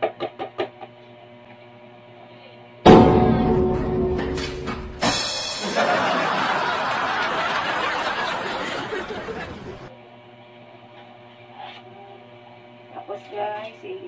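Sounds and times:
canned laughter: 5.6s - 9.9s
faint steady hum: 5.8s - 11.0s.

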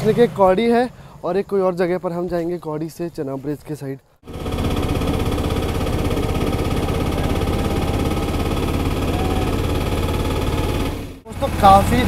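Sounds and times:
auto rickshaw engine buzzing: 0.0s - 1.5s, 4.2s - 12.0s.

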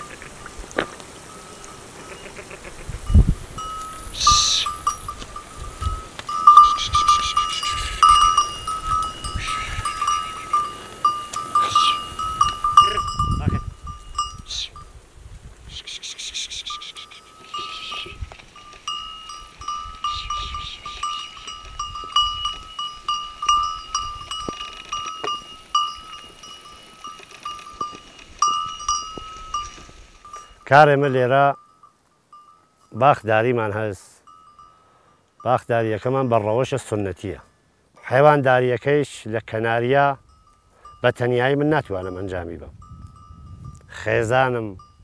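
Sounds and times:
sheep bells clinking: 0.0s - 15.0s, 15.8s - 45.0s
flock rustling through scrub: 13.7s - 30.6s.

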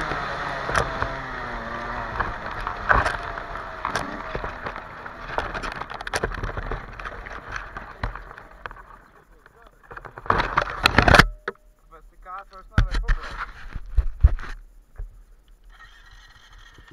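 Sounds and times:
bike rattling: 0.0s - 11.4s
sharp knocks over bumps: 0.0s - 11.4s
dirt bike engine: 0.0s - 11.7s.

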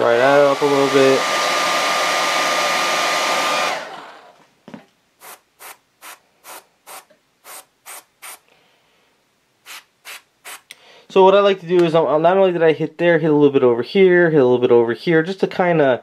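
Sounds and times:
hair dryer blowing: 0.0s - 4.4s
airbrush hissing: 5.2s - 8.5s, 9.6s - 10.7s.

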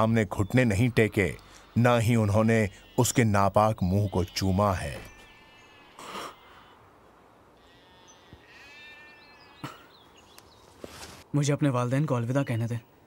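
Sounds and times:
sheep bleating: 0.8s - 6.9s, 7.6s - 9.7s
short rustle: 10.5s - 11.3s.

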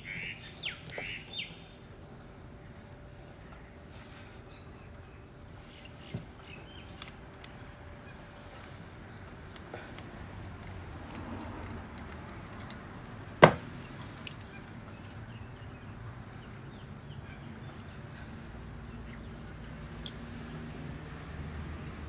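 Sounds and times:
screwdriver knocking on workbench: 13.4s - 13.7s.

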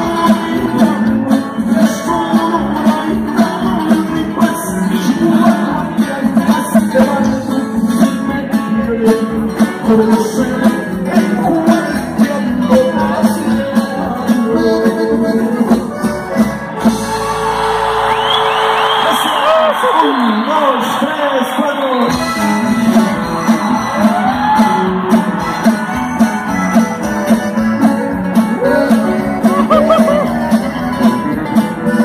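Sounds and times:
live band with singing: 0.0s - 32.0s
crowd cheering: 16.8s - 31.9s.

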